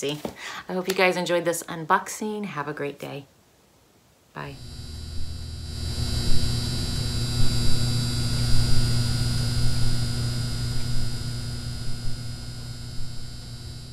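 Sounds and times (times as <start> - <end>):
electrical hum with high whine: 4.1 - 13.9
crackling pops: 7.4 - 13.2.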